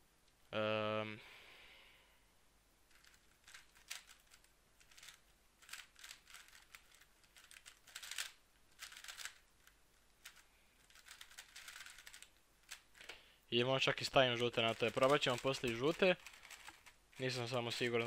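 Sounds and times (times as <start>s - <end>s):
puzzle cube plastic clicks: 2.9s - 13.2s, 14.4s - 18.0s.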